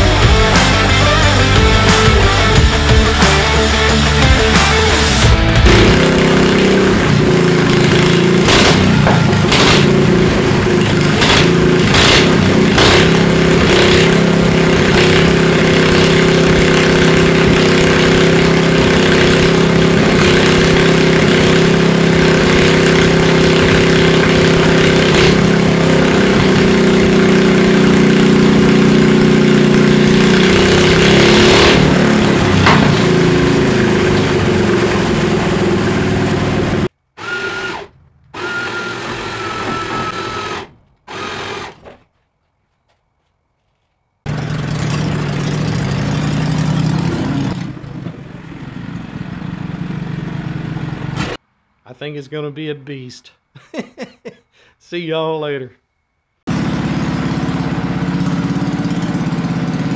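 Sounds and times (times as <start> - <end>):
motorcycle engine running: 0.0 - 36.9, 44.3 - 51.4, 56.5 - 59.9.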